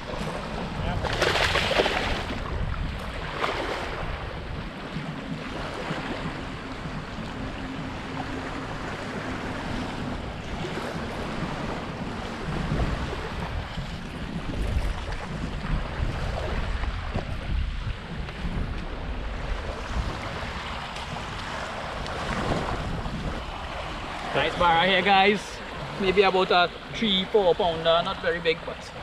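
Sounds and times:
small waves washing on sand: 0.0 - 29.0
wind buffeting microphone: 0.0 - 29.0
fish thrashing and splashing: 1.0 - 2.3.

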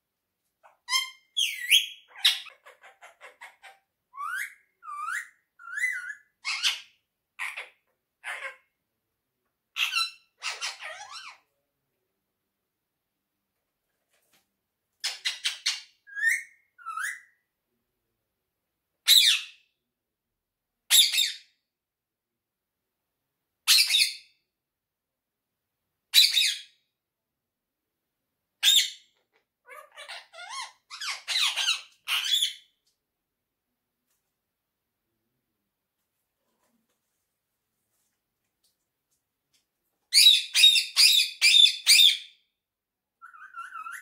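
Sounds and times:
parakeet screeching: 0.6 - 8.6, 9.8 - 11.4, 29.7 - 32.6, 43.2 - 44.0.

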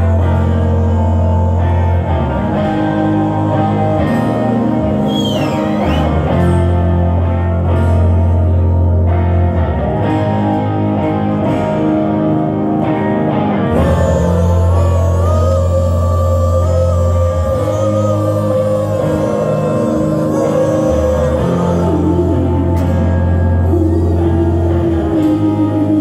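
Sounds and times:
electric guitar: 0.0 - 26.0
held bass notes: 0.0 - 26.0
short rising falling whistle: 5.0 - 6.2.

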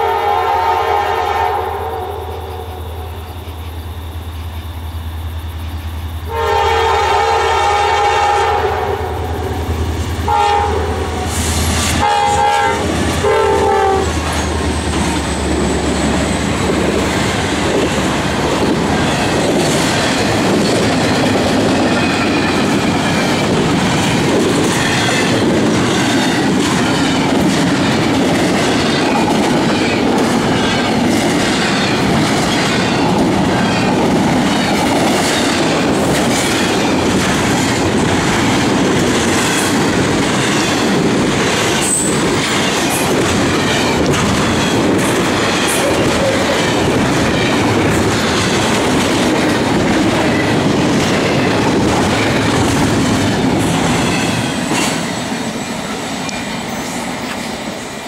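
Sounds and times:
freight train rolling past: 0.0 - 58.0
wheels clicking over rail joints: 13.8 - 57.6.

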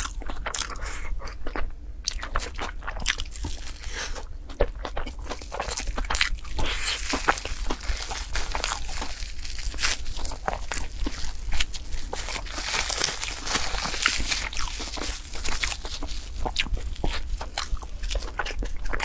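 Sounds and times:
chewing and mouth clicks: 0.0 - 19.0
plastic cling film crinkling: 5.2 - 19.0.

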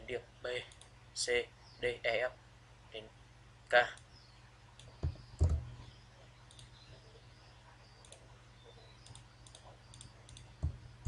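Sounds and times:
steady low hum: 0.0 - 11.0
low knocks: 5.0 - 5.8, 10.6 - 10.9
mouse and keyboard clicks: 9.0 - 10.8.

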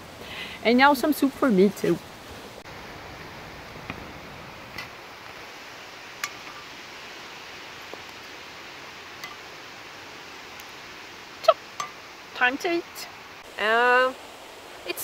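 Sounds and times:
steady background hiss: 0.0 - 15.0.

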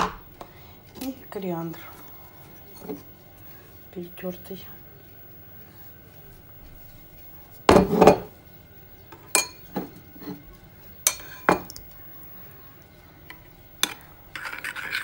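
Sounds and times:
metal spoon clinking on dishes: 9.2 - 10.4, 11.0 - 11.9.

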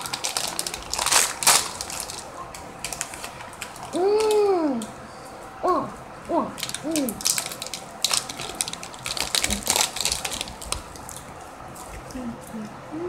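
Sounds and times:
quick clicks and crinkling: 0.0 - 4.5, 6.6 - 12.2.

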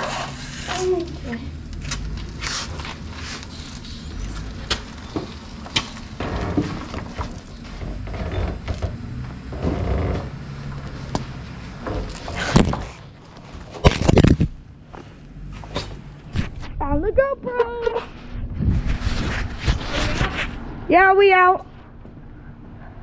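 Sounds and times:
tyres rolling on concrete: 0.0 - 15.8.

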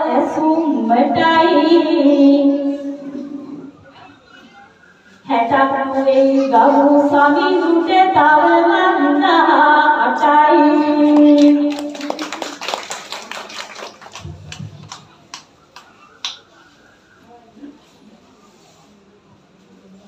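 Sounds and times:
woman singing unaccompanied: 5.3 - 12.0
people clapping: 10.7 - 16.6.

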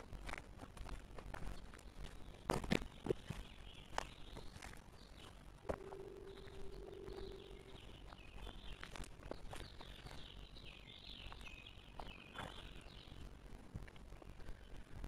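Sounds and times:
low steady hum: 0.0 - 15.0
songbird twittering: 3.0 - 13.2.

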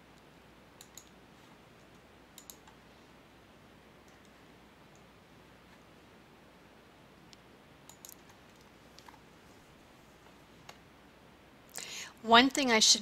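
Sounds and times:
computer mouse clicks: 0.8 - 1.2, 1.8 - 2.8, 7.2 - 9.2.

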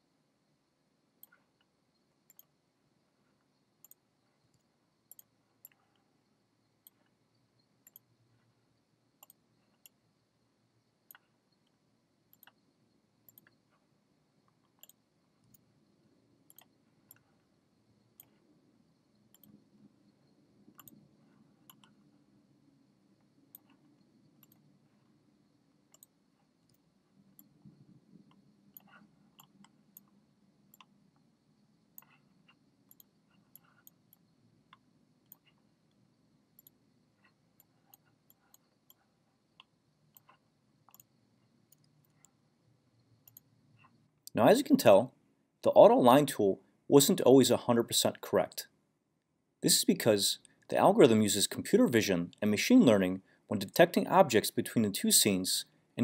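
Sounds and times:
faint computer mouse clicks: 2.3 - 2.5, 3.8 - 6.1, 7.8 - 8.1, 9.2 - 10.0, 11.1 - 12.6, 16.5 - 17.3, 19.3 - 19.6, 20.8 - 21.0, 21.6 - 22.0, 24.4 - 24.6, 25.9 - 26.1, 32.0 - 35.6, 39.6 - 41.1, 43.2 - 44.0.

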